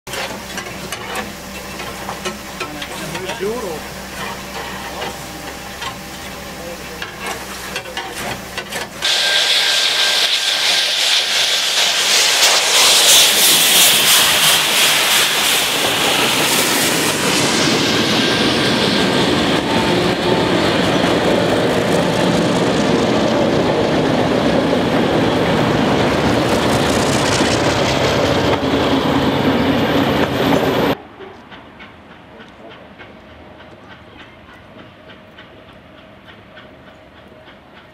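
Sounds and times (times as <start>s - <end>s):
steam hissing: 0.1s - 27.8s
carriages clickety-clack rolling past: 30.3s - 37.9s.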